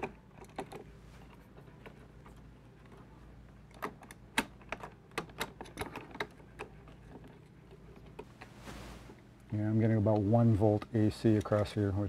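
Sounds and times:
tools clicking on metal: 0:03.7 - 0:08.3, 0:10.8 - 0:11.8.

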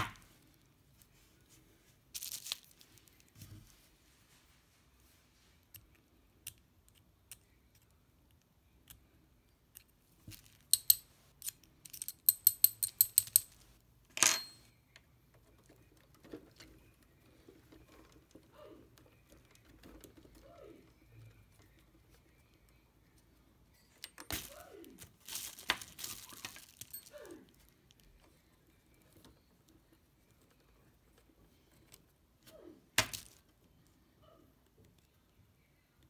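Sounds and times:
faint handling sounds: 0:00.1 - 0:36.0
metal tools clinking on metal: 0:14.2 - 0:14.7.

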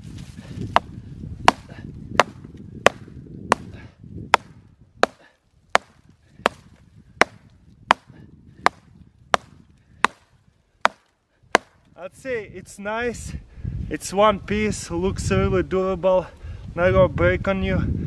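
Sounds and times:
hatchet chopping a stick: 0:00.7 - 0:10.2, 0:10.8 - 0:11.8.

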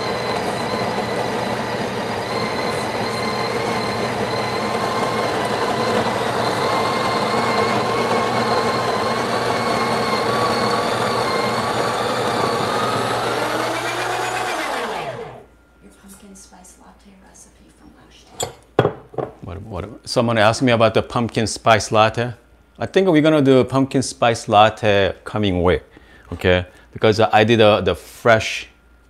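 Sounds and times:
coffee grinder grinding beans: 0:00.0 - 0:15.4.

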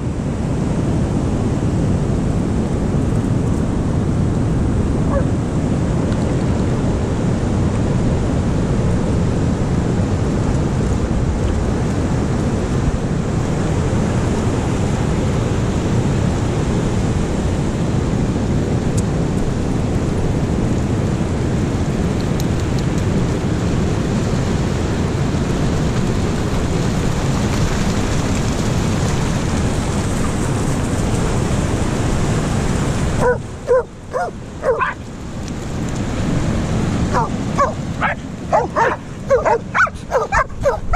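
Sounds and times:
breaking surf: 0:00.0 - 0:40.9
wind: 0:00.0 - 0:40.9
dogs barking and yipping: 0:05.1 - 0:05.3, 0:33.2 - 0:35.1, 0:37.1 - 0:40.9.

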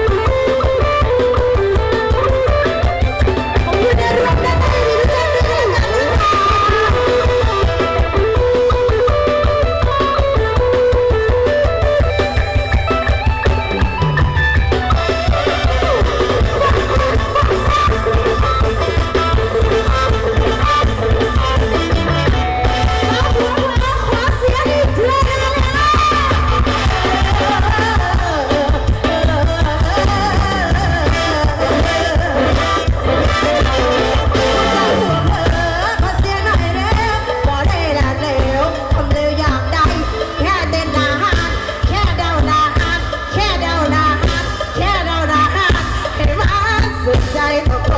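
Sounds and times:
person singing into microphone: 0:00.0 - 0:12.1, 0:22.7 - 0:47.9
live band through speakers: 0:00.0 - 0:47.9.

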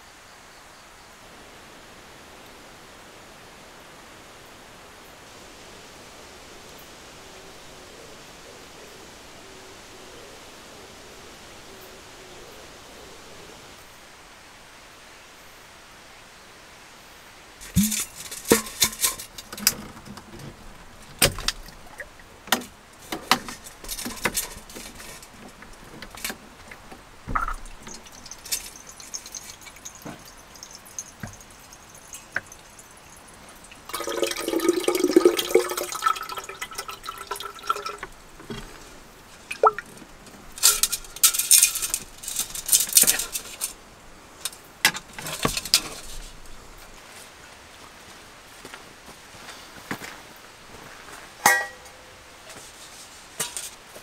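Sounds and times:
tap water running into kettle: 0:27.3 - 0:38.6, 0:39.5 - 0:39.9.

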